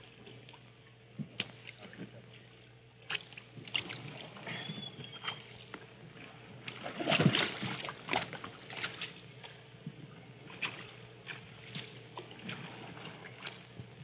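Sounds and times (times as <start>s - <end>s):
water sloshing against hull: 0.0s - 14.0s
paddles splashing: 6.3s - 9.6s.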